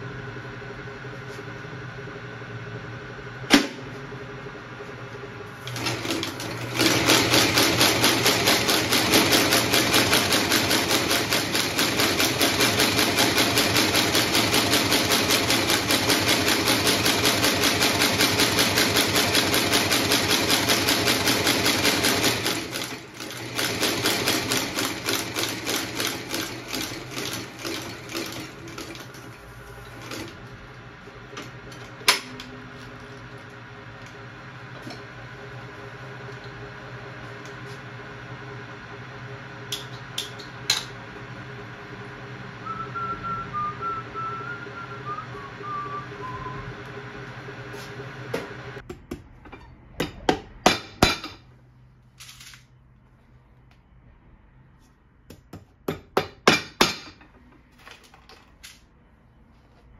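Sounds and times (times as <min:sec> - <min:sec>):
stitching machine clattering: 0:05.6 - 0:30.4.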